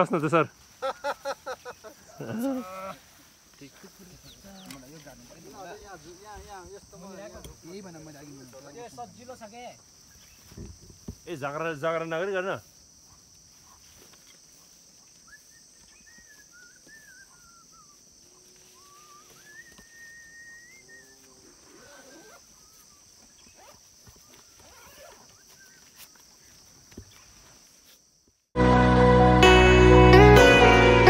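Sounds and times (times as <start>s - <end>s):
faint wavering animal calls: 13.0s - 26.6s
high-pitched insect drone: 16.8s - 25.6s.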